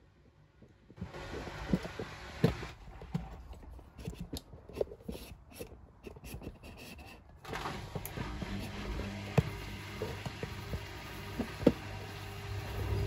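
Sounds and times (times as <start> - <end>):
washer dryer drum turning: 7.4 - 13.0.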